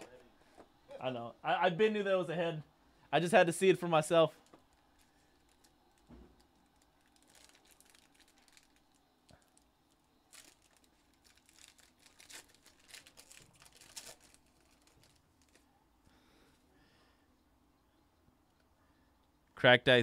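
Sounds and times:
foil card pack crinkling and tearing: 4.5 - 15.7.

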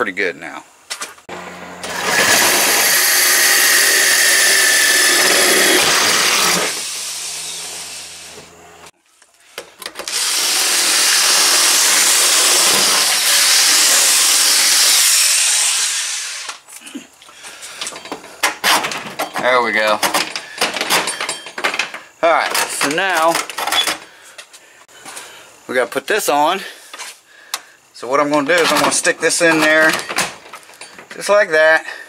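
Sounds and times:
power drill boring through metal: 1.8 - 8.4, 10.0 - 16.5.

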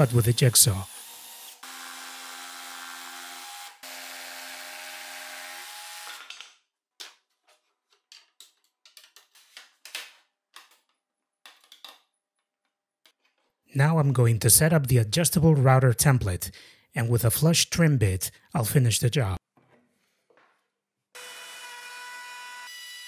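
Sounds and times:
cordless drill boring: 0.0 - 6.4, 21.2 - 23.0.

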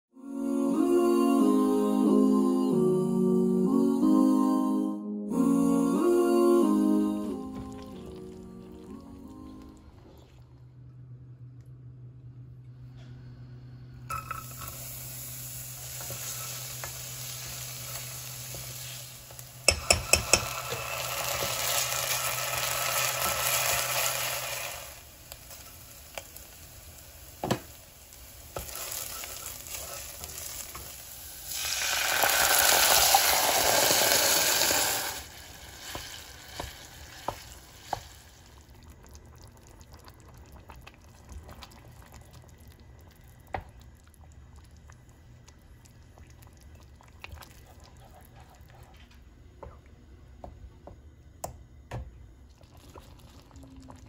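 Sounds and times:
food sizzling in a frying pan: 14.1 - 38.7.

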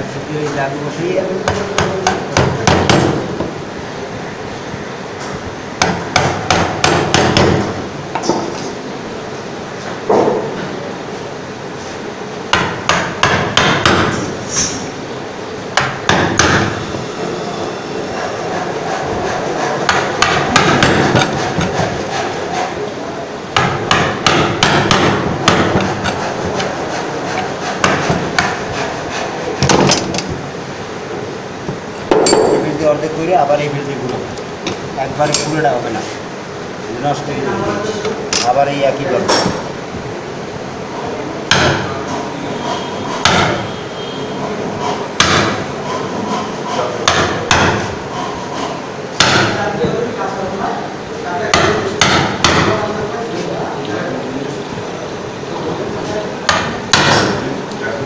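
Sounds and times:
mallet knocking on chisel: 1.4 - 3.2, 5.8 - 8.5, 12.5 - 14.2, 15.8 - 16.8, 19.9 - 21.9, 23.6 - 26.2, 41.5 - 41.9, 43.2 - 43.6, 45.2 - 45.6, 47.0 - 47.9, 49.2 - 49.6, 51.5 - 52.8, 56.5 - 57.4.

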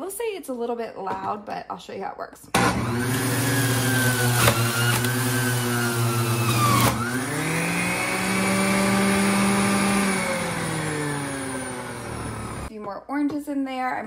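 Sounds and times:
juicer motor running: 2.6 - 12.7
knock in juicer: 4.3 - 5.4.

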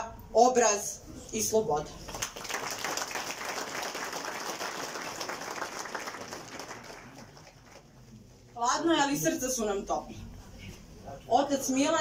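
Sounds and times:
crowd applauding: 2.0 - 8.0.

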